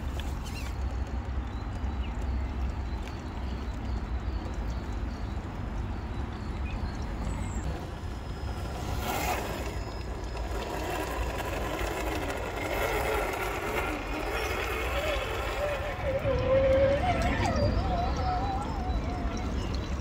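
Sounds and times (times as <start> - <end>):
electric motor whining: 7.7 - 19.6.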